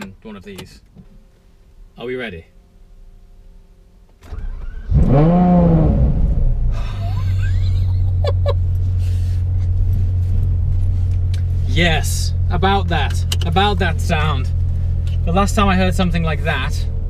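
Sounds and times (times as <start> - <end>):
car engine idling: 2.5 - 17.0
car engine starting and revving: 4.2 - 17.0.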